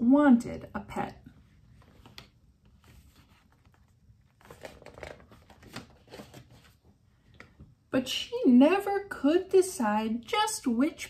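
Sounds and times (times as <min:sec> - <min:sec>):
picture book rustling: 0:01.4 - 0:07.6.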